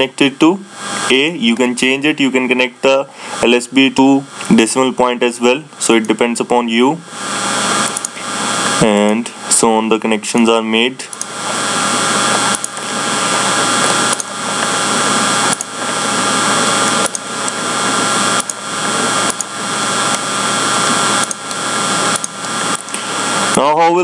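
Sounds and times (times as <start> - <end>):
steady microphone hiss: 0.0 - 24.0
hum: 6.6 - 24.0
sharp clicks: 7.8 - 8.2, 11.1 - 11.3, 12.3 - 12.9, 13.8 - 14.7, 15.5 - 15.8, 16.8 - 17.6, 18.4 - 18.6, 19.2 - 19.5, 21.2 - 23.0.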